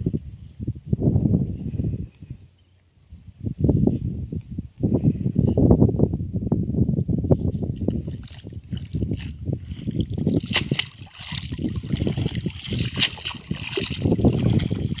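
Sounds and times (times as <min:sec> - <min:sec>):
water splashing and sloshing: 0:07.7 - 0:15.0.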